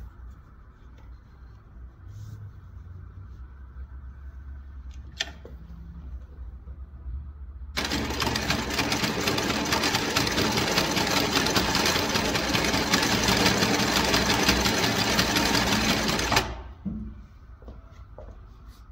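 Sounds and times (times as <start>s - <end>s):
click: 4.9s - 5.5s
sewing machine stitching: 7.8s - 16.7s.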